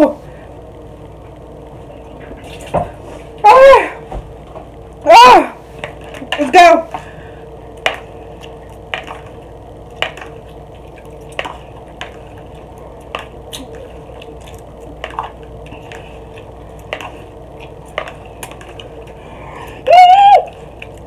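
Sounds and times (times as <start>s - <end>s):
faint steady hum: 0.0s - 21.0s
person slurping and chewing noodles: 7.7s - 19.9s.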